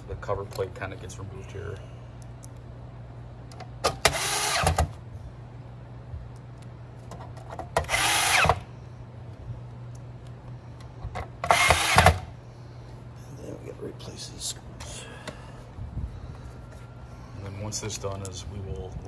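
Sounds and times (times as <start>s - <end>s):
cordless drill spinning: 4.0s - 4.8s, 7.8s - 8.6s, 11.4s - 12.3s.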